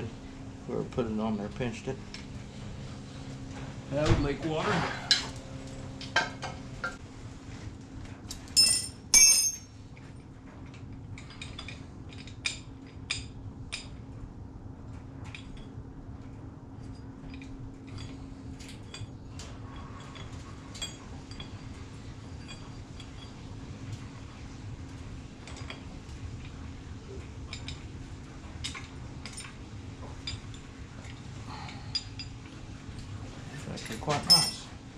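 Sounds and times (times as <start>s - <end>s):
metal engine parts clinking: 8.4s - 9.7s, 33.8s - 34.7s.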